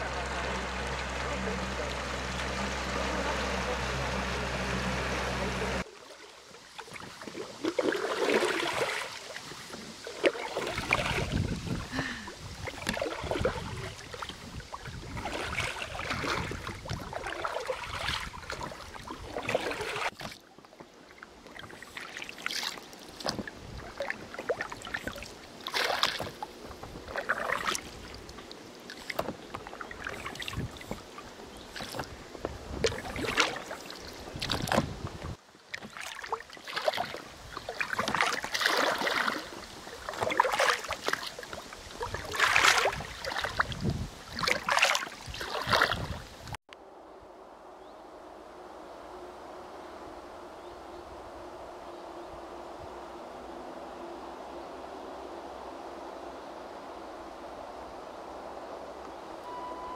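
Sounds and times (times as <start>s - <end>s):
outboard engine running: 0.0s - 9.0s, 9.6s - 46.6s, 59.3s - 59.9s
oars pulling through water: 0.0s - 46.9s
water splashes and drips: 5.3s - 46.6s.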